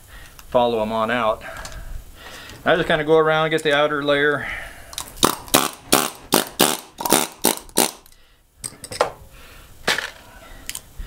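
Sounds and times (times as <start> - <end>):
pneumatic air chisel bursts: 5.2 - 8.2.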